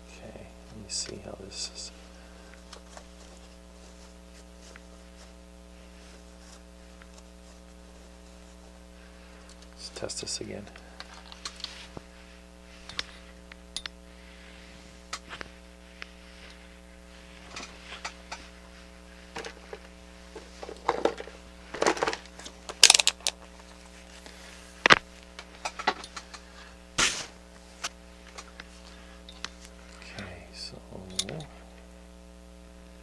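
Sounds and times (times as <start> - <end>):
steady electrical hum: 0.0 - 33.0
small plastic and metal parts handled: 19.3 - 23.4.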